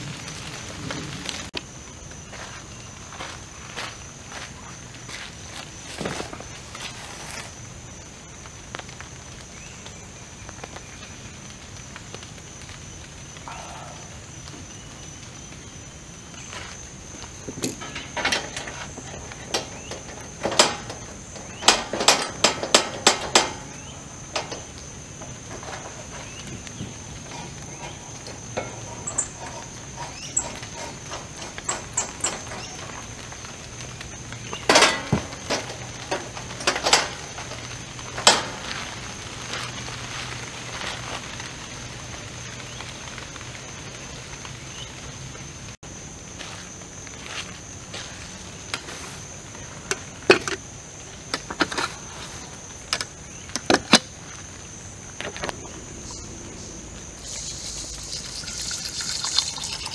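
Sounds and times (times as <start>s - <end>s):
metal clicks and knocks: 17.6s - 24.8s, 27.2s - 33.0s, 34.6s - 37.2s.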